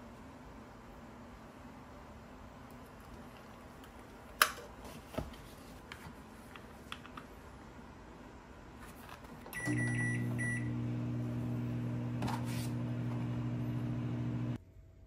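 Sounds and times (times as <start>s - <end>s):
microwave oven humming: 9.5s - 14.6s
keypad beeps: 9.6s - 10.7s.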